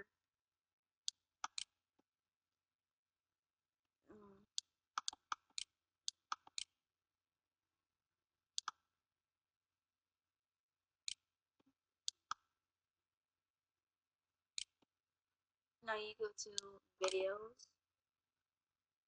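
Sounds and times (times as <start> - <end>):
computer mouse clicks: 1.1 - 1.7, 4.5 - 6.7, 8.6 - 8.8, 16.6 - 17.2.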